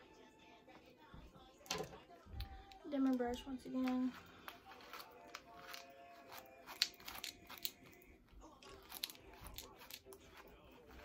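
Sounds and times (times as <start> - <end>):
hairbrush scratching through hair: 3.7 - 7.7, 8.7 - 11.0.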